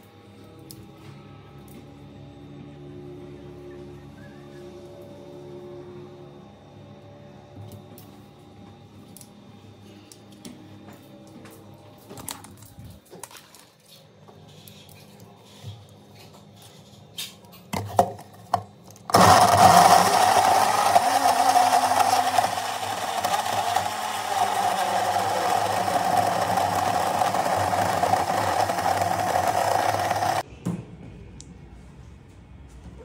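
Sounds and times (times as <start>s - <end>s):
electric blender running: 19.1s - 30.4s.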